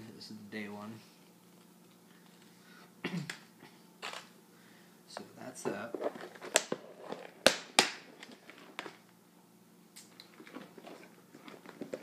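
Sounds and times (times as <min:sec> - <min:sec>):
packets tapping and rustling: 0:05.7 - 0:09.0.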